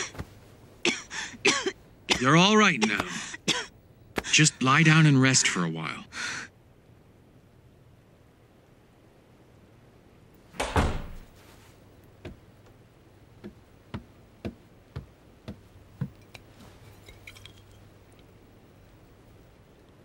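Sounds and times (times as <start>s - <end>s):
door banging: 10.6s - 11.3s
glass bottle clinking: 16.1s - 17.9s.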